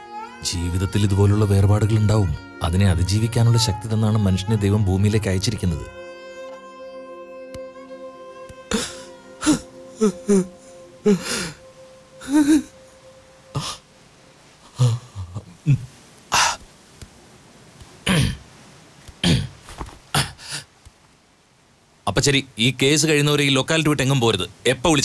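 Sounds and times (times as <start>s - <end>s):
held violin note: 0.0s - 13.9s
man sobbing: 8.7s - 13.8s, 14.6s - 16.6s.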